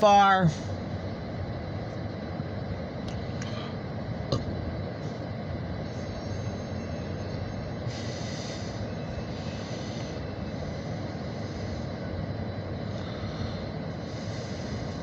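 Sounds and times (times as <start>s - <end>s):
bright hiss: 5.8s - 12.1s.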